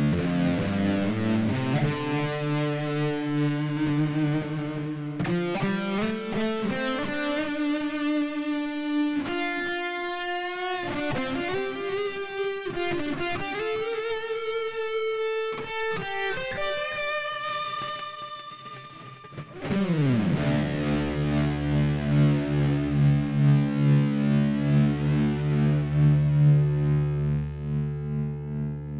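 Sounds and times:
electric guitar playing: 0:00.0 - 0:28.9.

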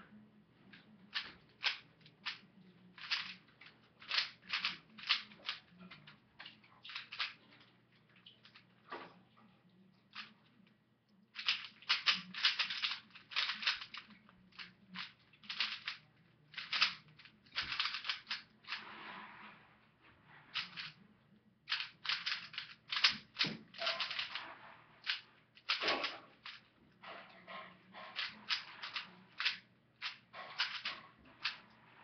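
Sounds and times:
puzzle cube plastic clicking: 0:01.0 - 0:07.4, 0:11.4 - 0:18.8, 0:20.6 - 0:20.9, 0:21.7 - 0:24.4, 0:25.0 - 0:26.7, 0:28.1 - 0:31.6.

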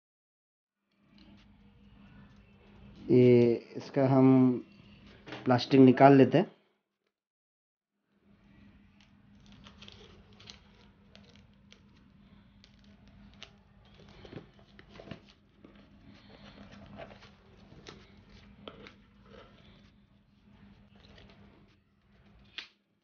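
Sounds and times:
plastic wrap crinkling: 0:09.1 - 0:22.9.

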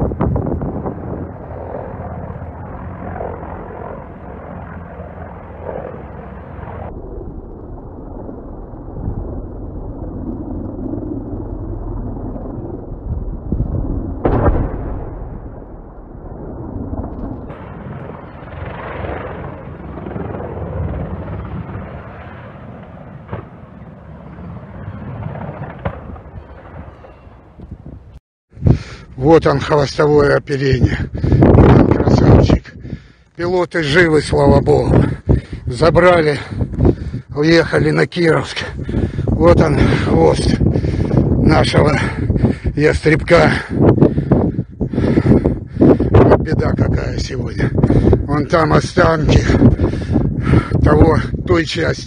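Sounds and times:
wind rumbling on microphone: 0:00.0 - 0:52.0
loud bang: 0:14.2 - 0:17.7.

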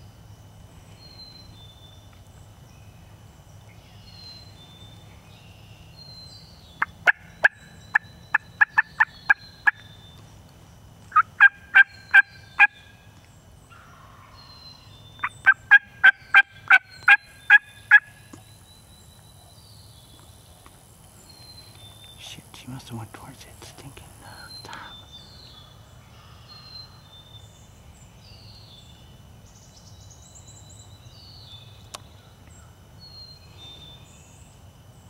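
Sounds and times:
faint songbirds whistling: 0:00.0 - 0:23.0, 0:24.2 - 0:35.0
turkey yelps: 0:11.1 - 0:12.8.

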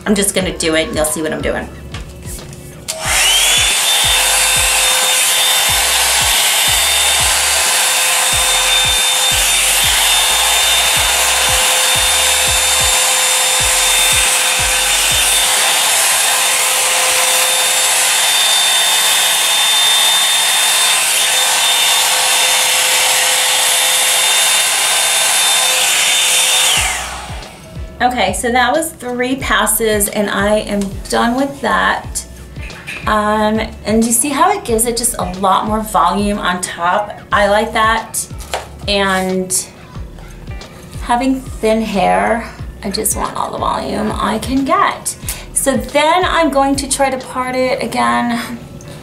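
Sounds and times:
hot-air brush blowing: 0:02.9 - 0:28.1.

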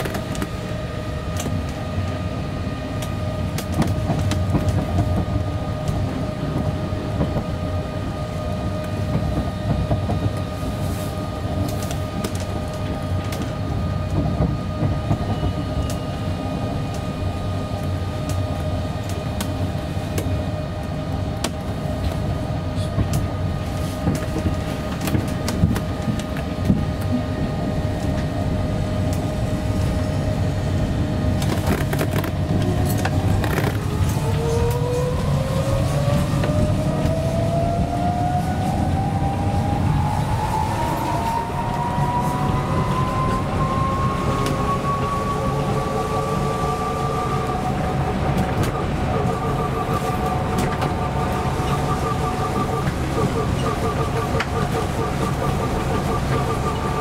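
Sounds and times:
vehicle cabin running rumble: 0:00.0 - 0:57.0.

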